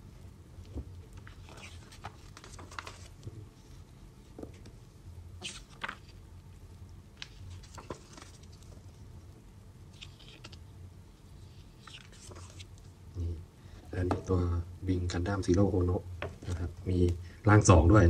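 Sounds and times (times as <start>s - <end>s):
faint low hum: 0.0s - 18.0s
magazine pages rustling: 1.1s - 3.3s, 5.4s - 6.2s, 7.2s - 8.9s, 9.9s - 10.6s, 11.5s - 12.9s.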